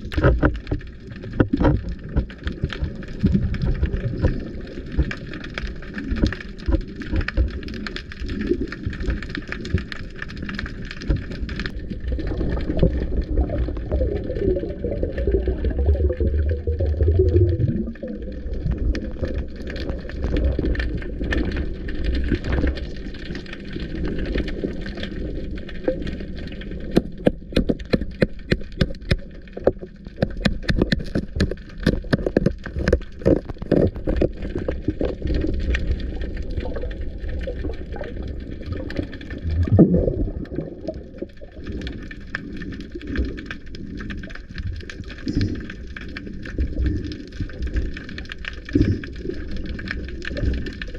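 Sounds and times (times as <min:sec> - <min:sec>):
surge of water noise: 0:00.0 - 0:50.9
underwater rumble: 0:00.0 - 0:50.9
sharp clicks and knocks: 0:00.1 - 0:05.2, 0:26.9 - 0:35.2.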